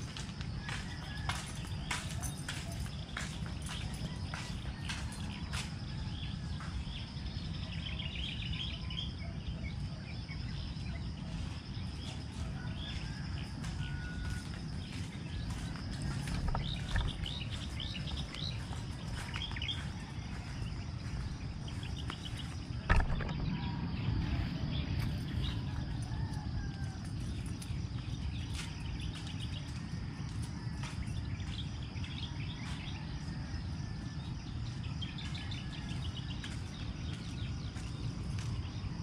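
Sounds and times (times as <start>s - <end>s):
songbirds chirping: 0.0s - 39.0s
low rumble: 22.7s - 25.7s
sharp knock: 22.9s - 23.5s.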